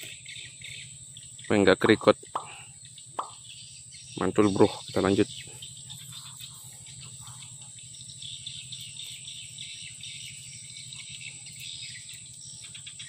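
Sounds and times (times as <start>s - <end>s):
insect chorus chirring: 0.0s - 13.0s.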